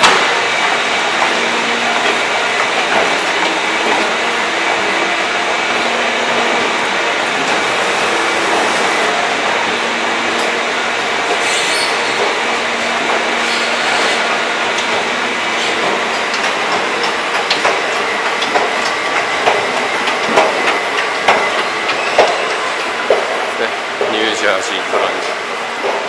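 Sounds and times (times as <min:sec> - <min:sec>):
escalator mechanical hum: 0:00.0 - 0:26.0.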